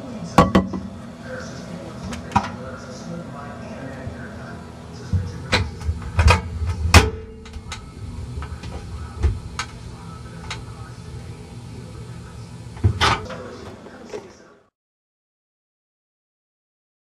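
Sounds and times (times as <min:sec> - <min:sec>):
knocks and clicks on a microwave oven: 0:05.2 - 0:07.9.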